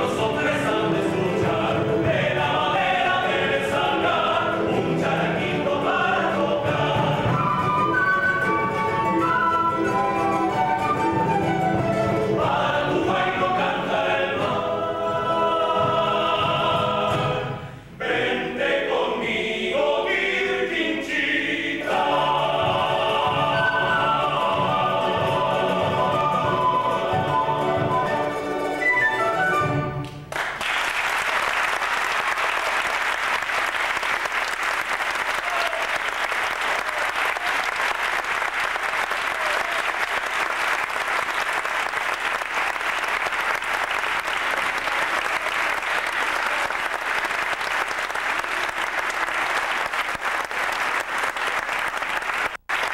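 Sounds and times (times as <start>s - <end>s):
audience applauding: 30.0s - 52.9s.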